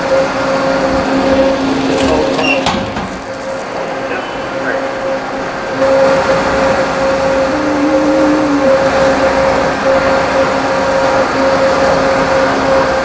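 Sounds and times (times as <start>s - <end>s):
machine hum: 4.9s - 13.0s
short high tone: 7.4s - 9.3s.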